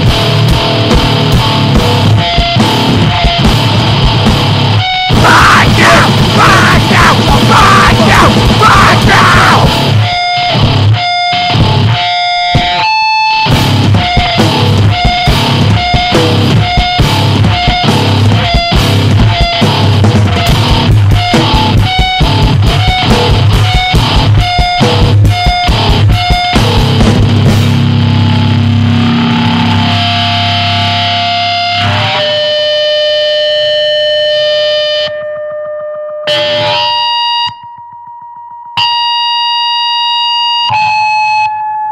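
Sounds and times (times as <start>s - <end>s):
distorted guitar and drums: 0.0s - 41.9s
ringing guitar notes: 0.0s - 41.9s
shouted vocals: 5.1s - 10.0s.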